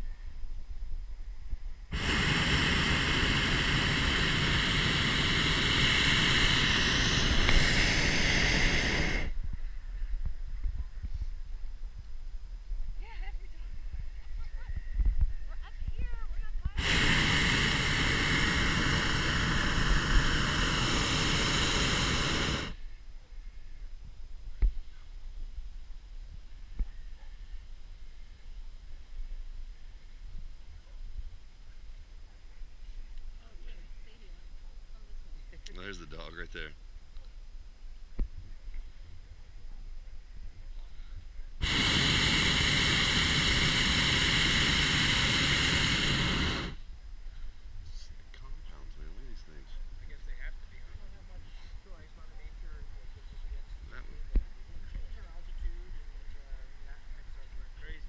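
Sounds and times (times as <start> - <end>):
propane burner rushing hiss: 1.9 - 9.5, 16.6 - 22.8, 40.8 - 58.0.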